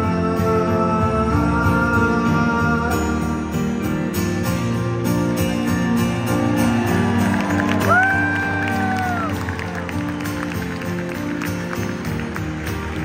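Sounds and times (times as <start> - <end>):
person singing: 0.0 - 3.9
acoustic guitar strumming: 0.0 - 13.0.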